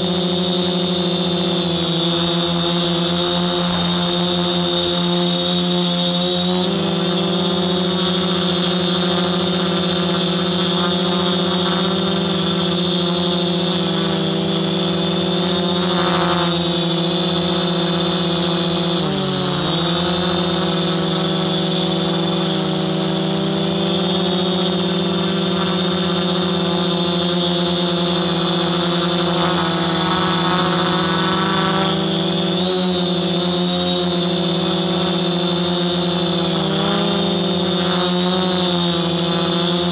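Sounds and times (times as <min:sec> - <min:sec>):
drone motors humming: 0:00.0 - 0:39.9.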